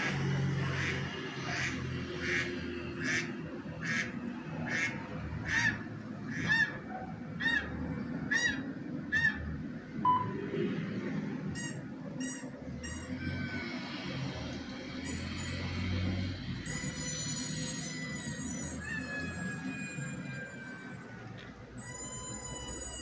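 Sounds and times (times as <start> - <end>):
brief beep: 10.1 - 10.5.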